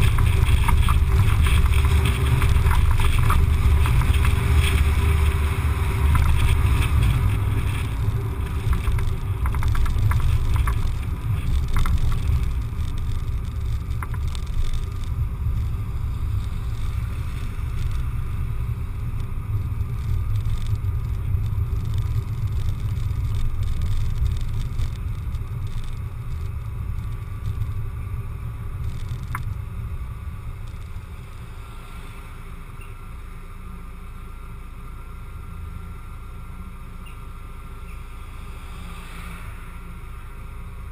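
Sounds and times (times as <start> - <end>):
wind on microphone: 0.0 - 31.0
car road noise rumble: 0.0 - 40.9.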